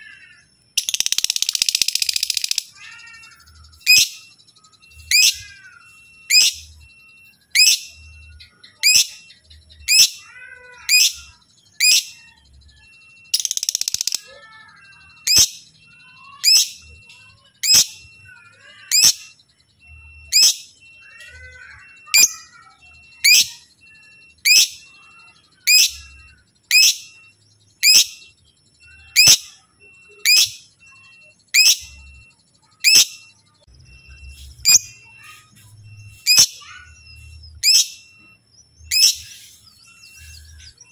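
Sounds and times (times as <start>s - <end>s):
bird chattering: 0.0s - 6.8s, 7.4s - 12.4s, 13.3s - 40.9s
lovebird shrill calls: 5.1s - 6.6s, 27.8s - 28.2s, 28.9s - 29.5s, 38.9s - 39.5s.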